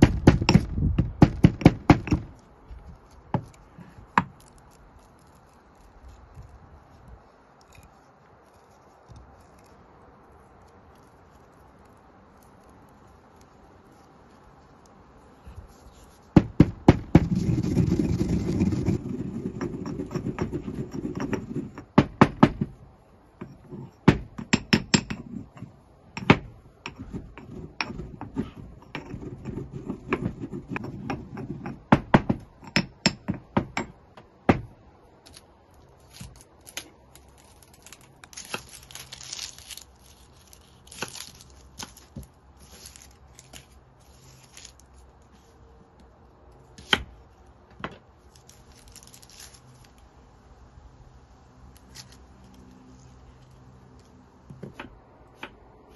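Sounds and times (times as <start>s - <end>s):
pestle grinding in stone mortar: 0.0s - 6.5s, 15.6s - 22.8s, 23.4s - 34.7s, 36.0s - 44.9s.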